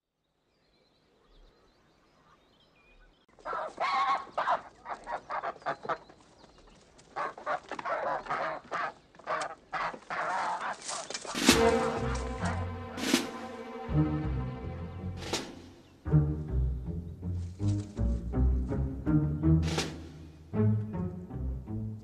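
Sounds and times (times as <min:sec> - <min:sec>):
geese honking: 0:07.2 - 0:15.4.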